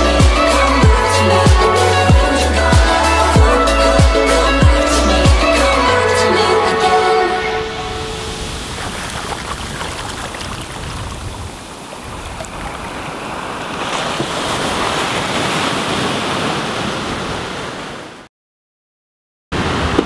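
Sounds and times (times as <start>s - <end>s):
wind rumbling on microphone: 7.7s - 17.6s
ocean surf washing over sand: 7.8s - 18.3s, 19.6s - 20.0s.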